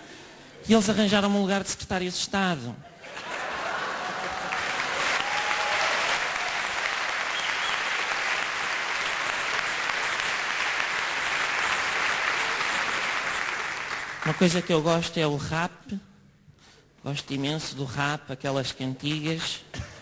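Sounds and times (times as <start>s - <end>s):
audience applauding: 3.2s - 14.8s.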